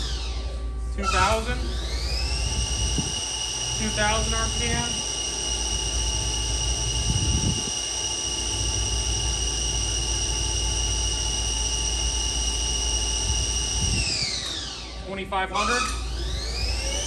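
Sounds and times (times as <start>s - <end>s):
lathe spindle whining: 0.0s - 17.0s.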